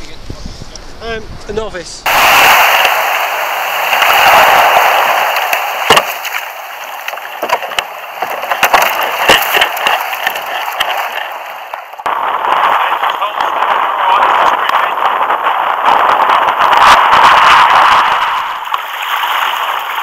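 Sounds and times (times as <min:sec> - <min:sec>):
surf washing around kayak: 0:02.0 - 0:20.0
knocks of kayak and paddle: 0:05.2 - 0:12.1.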